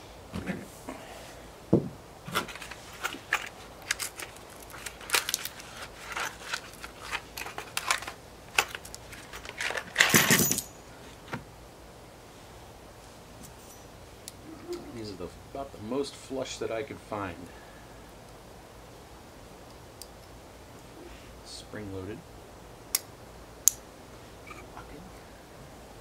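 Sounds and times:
metal hardware clinking and rattling: 2.3 - 10.9.

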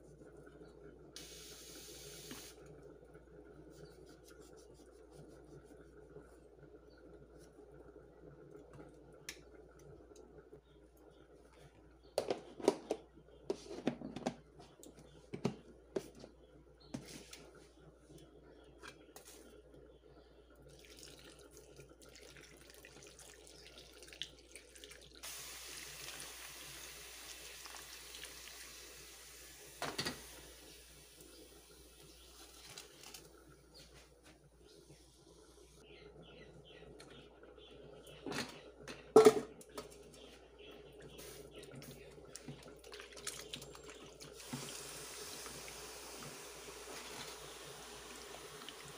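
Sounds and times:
water pouring into metal bowl: 20.7 - 29.2.

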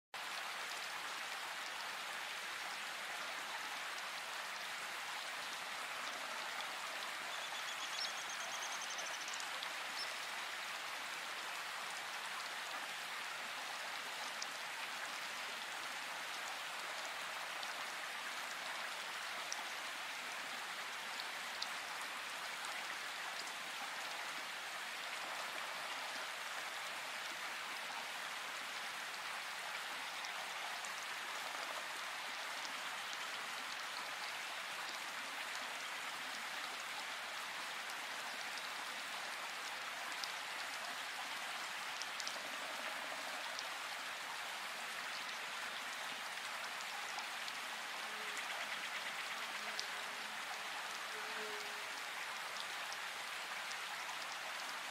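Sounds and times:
steady rain falling: 0.2 - 54.9.

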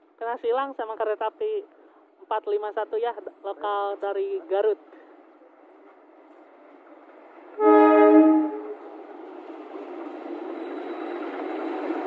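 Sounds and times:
train wheels on rails: 4.9 - 12.0
locomotive horn blast: 7.6 - 8.8.

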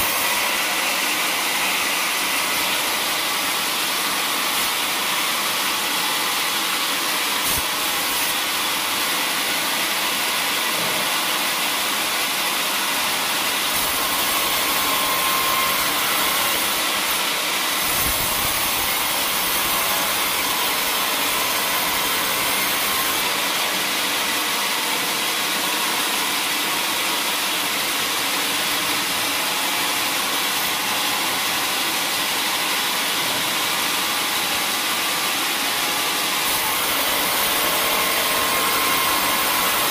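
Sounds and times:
band saw cutting log: 0.0 - 11.2, 12.3 - 24.4, 35.4 - 39.9.

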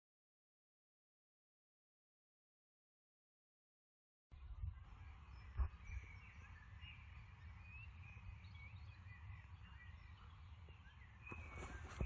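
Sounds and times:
birds chirping faintly: 4.3 - 12.0
wind rumble on microphone: 4.3 - 12.0.

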